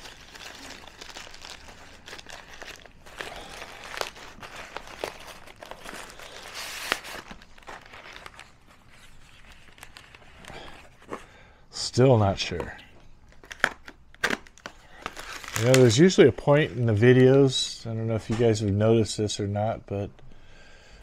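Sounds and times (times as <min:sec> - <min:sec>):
plastic bag and bubble wrap crinkling: 0:00.0 - 0:11.1, 0:13.3 - 0:17.8.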